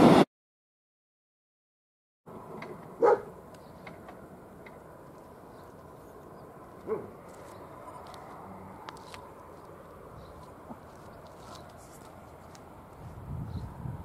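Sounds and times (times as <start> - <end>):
dog barking: 3.0 - 3.3, 6.8 - 7.2.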